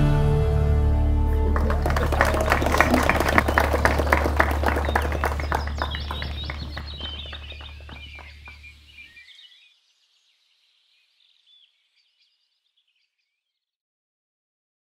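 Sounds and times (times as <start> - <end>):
people clapping: 1.3 - 8.9
birds chirping: 1.3 - 13.4.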